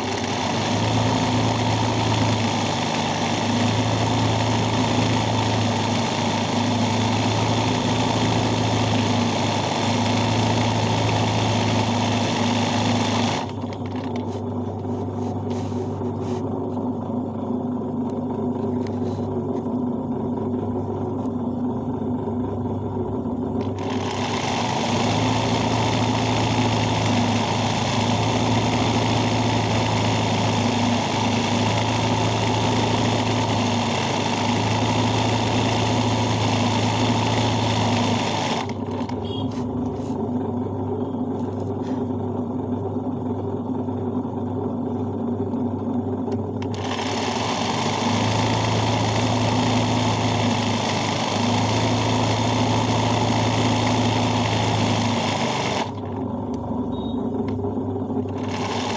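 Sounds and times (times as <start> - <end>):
sewing machine running: 0.0 - 14.3, 23.6 - 39.3, 46.6 - 56.2, 58.2 - 58.9.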